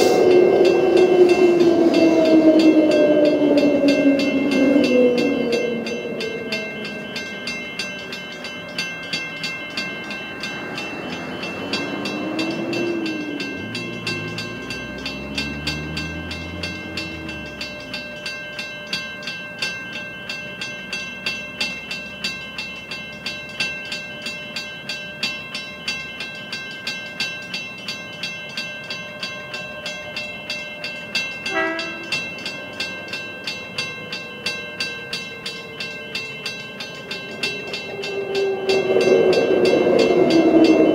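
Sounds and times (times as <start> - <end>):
vehicle pulling away: 0.0 - 7.4, 9.8 - 18.3, 35.3 - 40.9
level crossing warning bell: 0.0 - 40.9.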